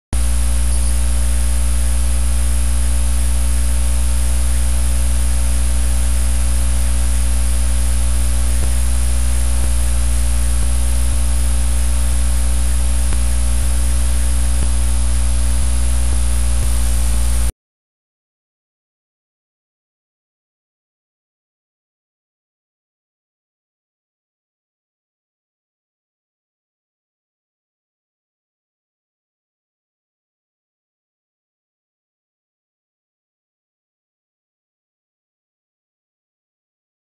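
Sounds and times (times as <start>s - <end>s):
electrical mains hum and buzz: 0.2s - 17.5s.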